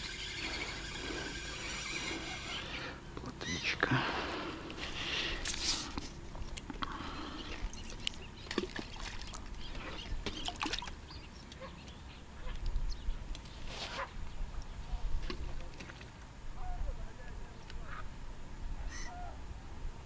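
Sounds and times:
duck calling: 0:00.0 - 0:03.7.

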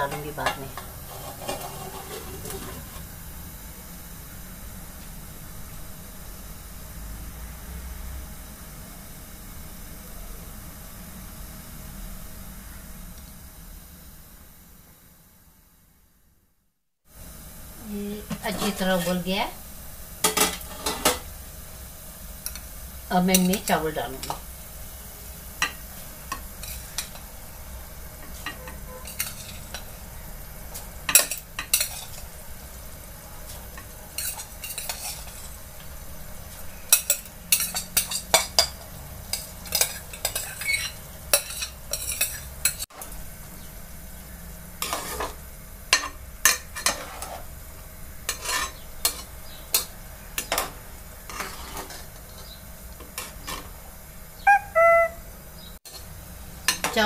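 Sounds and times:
spoon clinking and scraping pot: 0:00.1 - 0:03.0, 0:28.2 - 0:29.9, 0:31.1 - 0:32.2, 0:33.8 - 0:35.6, 0:36.9 - 0:42.8, 0:44.8 - 0:47.4, 0:48.3 - 0:50.7.

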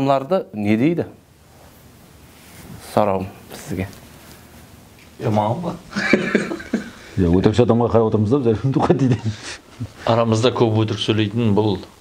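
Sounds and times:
room hiss: 0:00.0 - 0:12.0
man talking: 0:02.8 - 0:04.0, 0:05.2 - 0:06.6, 0:07.2 - 0:12.0.

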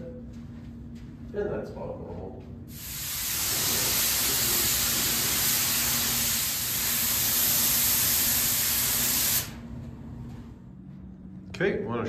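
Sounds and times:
spray gun hissing: 0:02.7 - 0:09.6.

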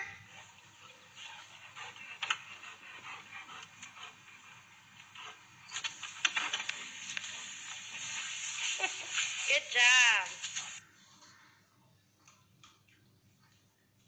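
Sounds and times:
scattered clicks: 0:05.0 - 0:08.0
garden hose water splashing: 0:06.7 - 0:10.8.

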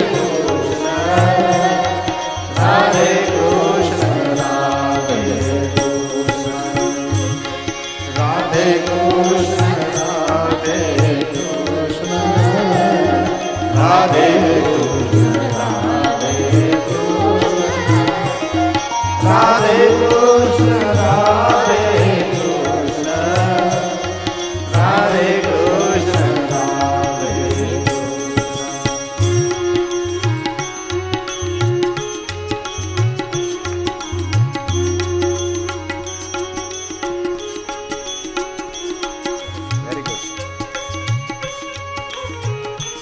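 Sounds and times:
person singing devotional song: 0:00.0 - 0:36.4, 0:37.0 - 0:43.0.

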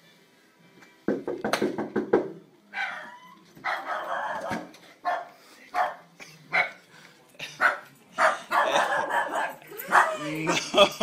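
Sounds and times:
dog whining and barking: 0:02.8 - 0:04.6.

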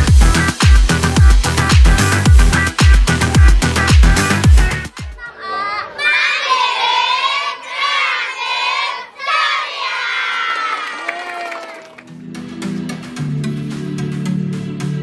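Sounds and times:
electronic music with heavy beat: 0:00.0 - 0:05.2
children shouting and cheering: 0:04.6 - 0:12.0.

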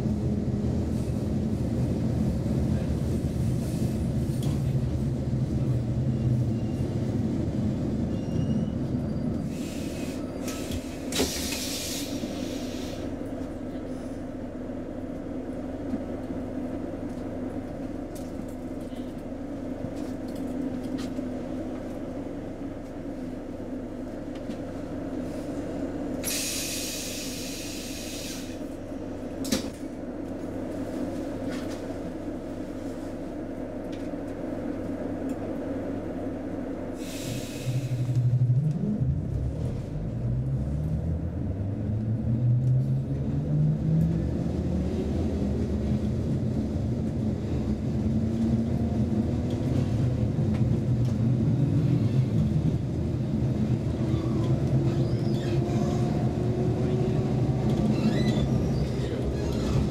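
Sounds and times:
train rumble and hum: 0:00.0 - 0:59.9
air hisses: 0:26.2 - 0:28.6.

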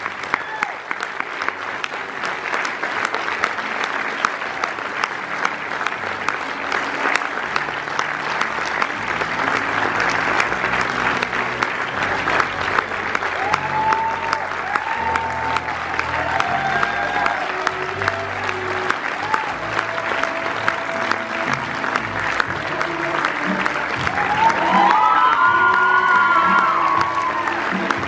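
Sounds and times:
audience applauding: 0:00.0 - 0:28.0
band music: 0:07.0 - 0:28.0.

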